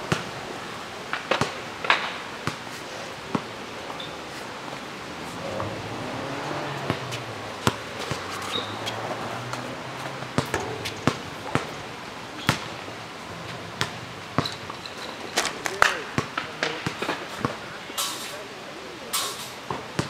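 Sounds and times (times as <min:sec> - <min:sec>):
basketball bouncing on asphalt: 0:00.1 - 0:00.3, 0:01.3 - 0:02.6, 0:06.8 - 0:12.9, 0:13.5 - 0:14.8, 0:15.7 - 0:17.6, 0:19.7 - 0:20.0.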